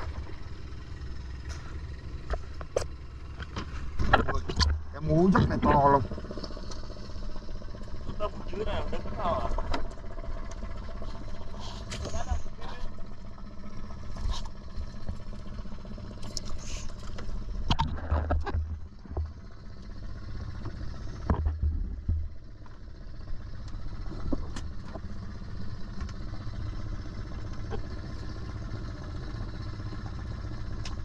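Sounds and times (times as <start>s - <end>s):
boat motor running: 0.0s - 31.0s
knocks and clatter: 17.1s - 19.5s, 20.6s - 22.8s.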